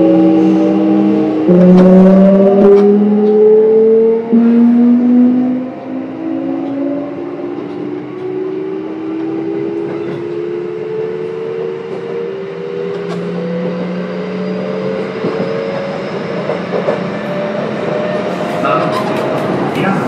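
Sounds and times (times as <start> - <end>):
wheel and rail noise: 5.6 - 20.0.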